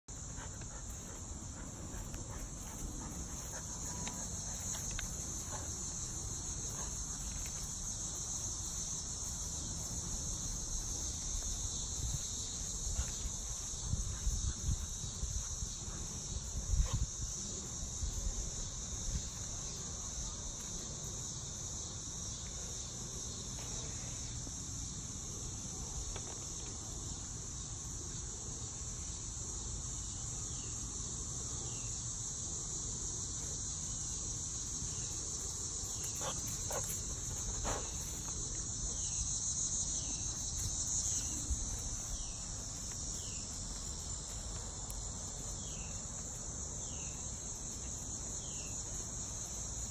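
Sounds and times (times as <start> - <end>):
insects chorus: 0.1 - 49.9.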